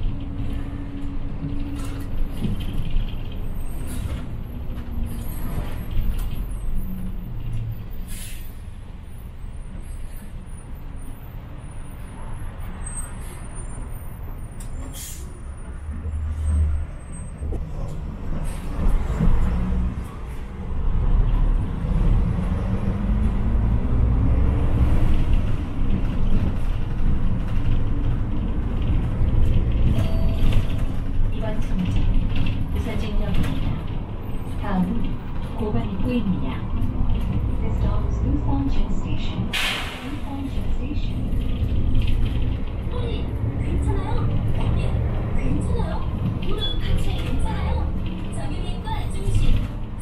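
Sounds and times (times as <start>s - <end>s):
bus engine rumbling: 0.0s - 50.0s
air brake hisses: 8.1s - 8.6s, 14.9s - 15.4s, 39.5s - 40.2s.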